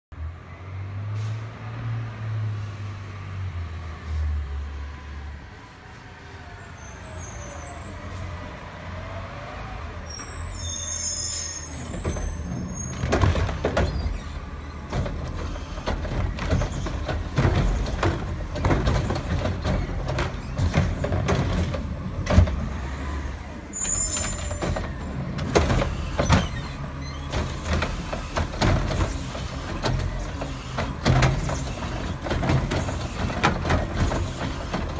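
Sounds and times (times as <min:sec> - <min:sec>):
brake squeals: 0:05.6 - 0:34.9
cart and arm clanking: 0:10.1 - 0:34.9
garbage truck engine running: 0:11.8 - 0:34.9.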